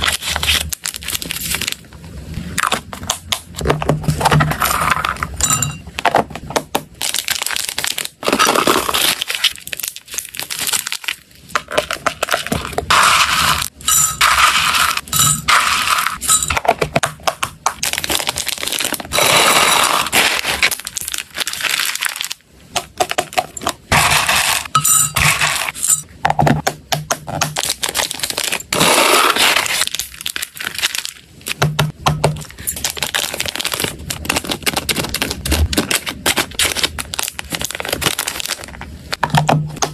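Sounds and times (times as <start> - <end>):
plastic bags crinkling: 0.0 - 1.9, 6.0 - 13.7, 17.8 - 22.4, 27.6 - 31.6, 32.4 - 39.2
dry snacks clattering into plastic boxes: 32.6 - 38.8.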